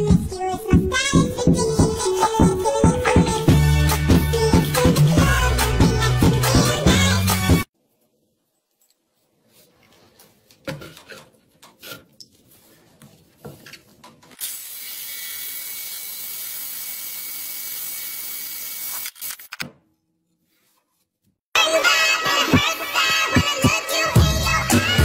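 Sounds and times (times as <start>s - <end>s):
drill grinding through tile: 14.4s - 19.0s.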